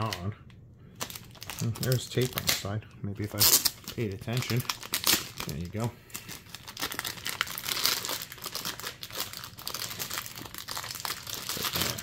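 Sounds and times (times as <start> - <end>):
plastic wrap crinkling and tearing: 1.0 - 12.0.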